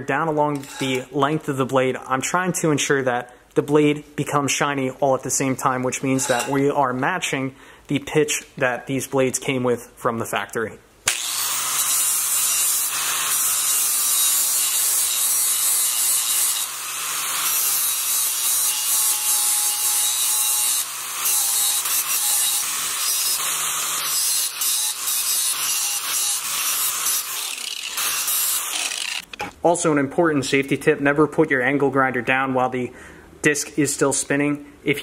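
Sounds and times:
angle grinder grinding steel: 0.6 - 1.1, 6.1 - 6.7, 11.1 - 29.5.

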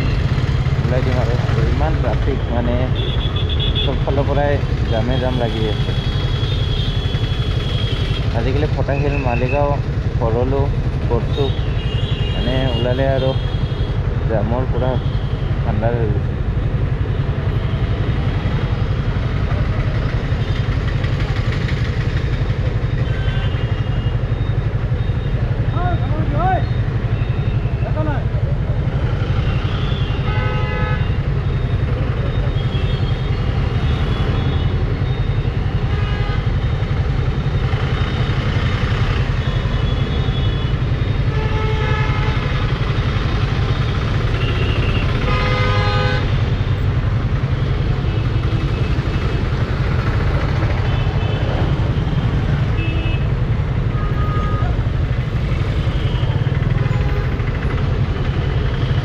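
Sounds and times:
vehicle horns honking: 2.3 - 4.0, 11.4 - 14.0, 23.0 - 24.2, 29.3 - 31.4, 32.3 - 34.8, 35.6 - 36.7, 39.3 - 42.8, 43.6 - 46.6, 50.6 - 54.9.

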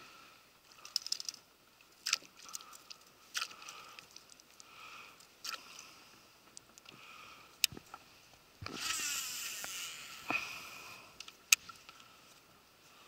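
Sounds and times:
sharp reel clicks: 8.6 - 10.2
fishing reel whirring: 8.6 - 11.0.

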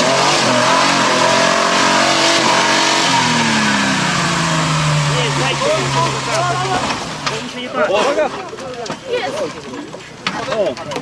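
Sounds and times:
engine revving hard: 0.0 - 7.3.

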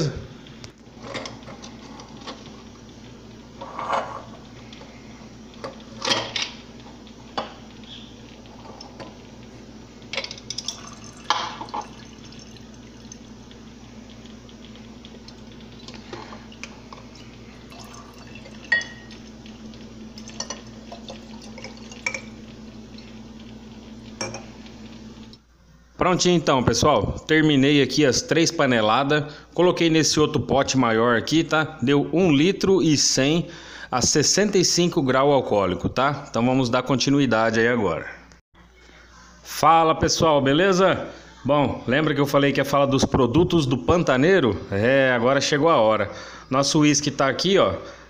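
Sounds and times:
steady low hum: 0.0 - 29.7
liquid trickling into glass: 10.4 - 13.4, 15.2 - 19.4, 20.1 - 23.1.

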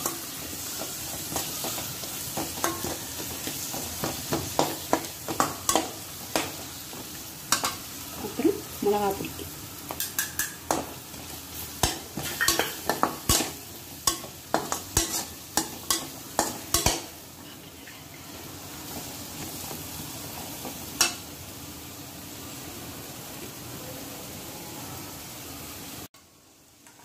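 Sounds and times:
vegetables sizzling in oil: 0.0 - 27.0
metal spatula clacking on pan: 2.4 - 3.0, 3.7 - 6.6, 10.0 - 10.9, 11.8 - 17.1.

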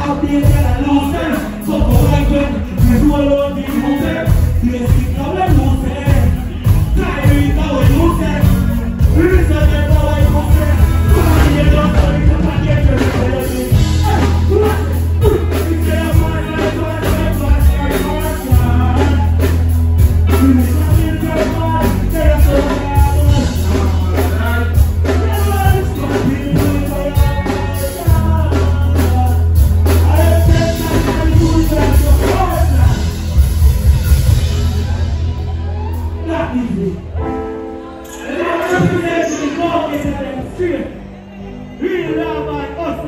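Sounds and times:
person singing: 0.0 - 35.1
deep heavy bass line: 0.0 - 37.3
dancehall music over sound system: 9.1 - 19.4.

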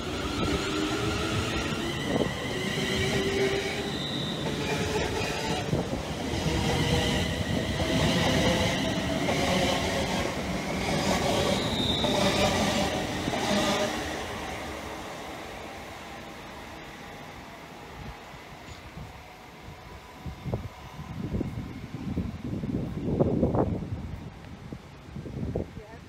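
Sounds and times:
train wheels rumbling on rails: 0.0 - 25.9
high-pitched squealing and whining: 6.4 - 14.1.

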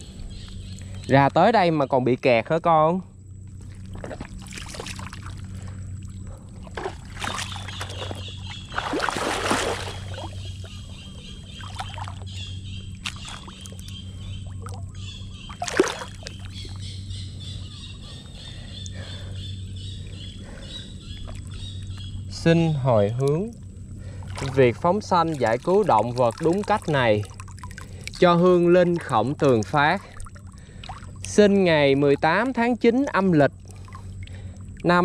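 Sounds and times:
low hum: 0.0 - 35.0
sloshing through water: 3.5 - 22.4, 23.0 - 35.0.

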